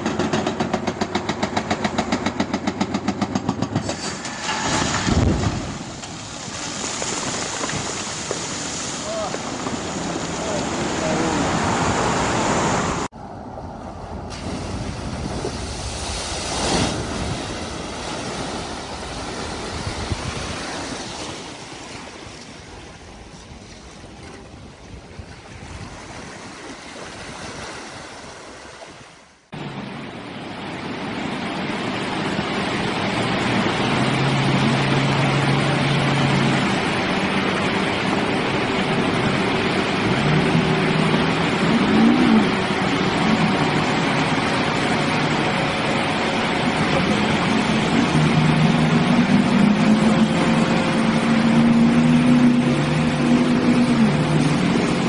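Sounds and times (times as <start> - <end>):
truck engines running: 0.0 - 16.3, 29.5 - 55.0
wind and surf rushing: 0.0 - 55.0
water rushing and splashing: 3.8 - 55.0.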